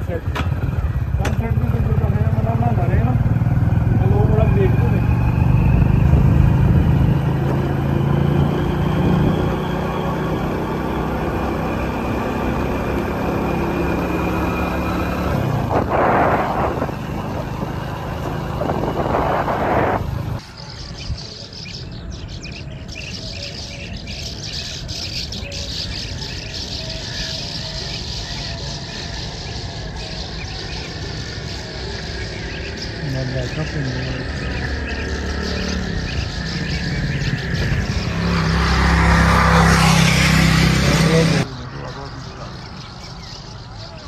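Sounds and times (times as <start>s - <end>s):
small vehicle engine running: 0.0s - 20.4s
flock of birds chirping: 0.0s - 44.0s
rushes of noise: 3.1s - 20.4s
wind noise: 4.9s - 9.9s, 15.0s - 21.3s, 35.9s - 40.5s.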